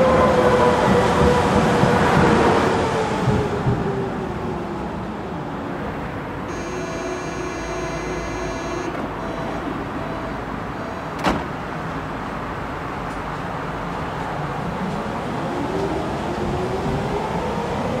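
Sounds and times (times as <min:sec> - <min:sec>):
standing train hum: 0:00.0 - 0:18.0
high ringing tone: 0:06.5 - 0:11.2
short warning beep: 0:06.5 - 0:11.2
sliding doors slamming shut: 0:10.9 - 0:11.9.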